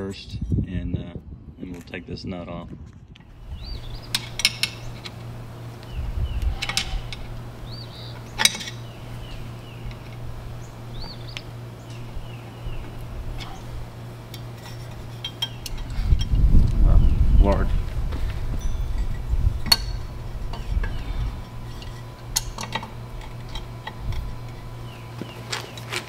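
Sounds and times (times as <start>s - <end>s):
steady low hum: 0.0s - 26.0s
screwdriver clinking and scraping metal: 14.3s - 16.4s, 18.6s - 24.6s.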